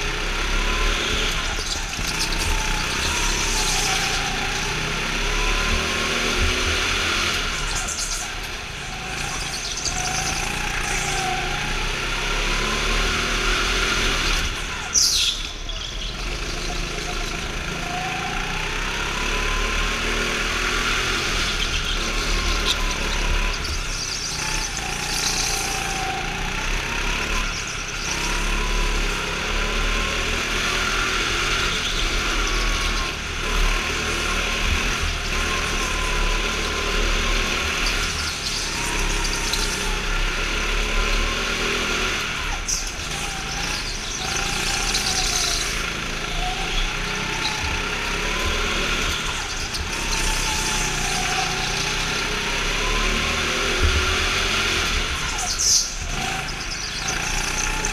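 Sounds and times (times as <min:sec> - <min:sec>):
go-kart engine: 0:00.0 - 0:57.9
high squeal: 0:00.0 - 0:57.9.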